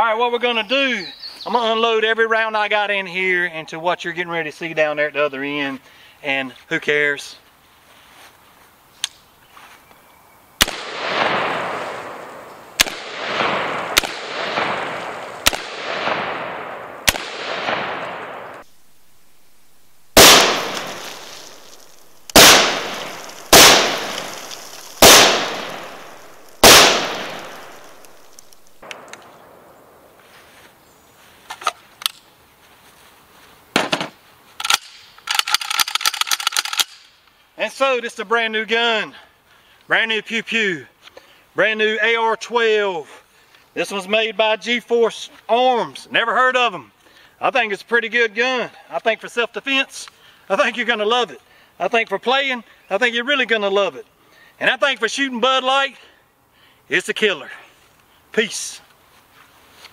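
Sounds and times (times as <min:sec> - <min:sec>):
shotgun shots echoing: 0:10.6 - 0:19.1, 0:19.8 - 0:30.2.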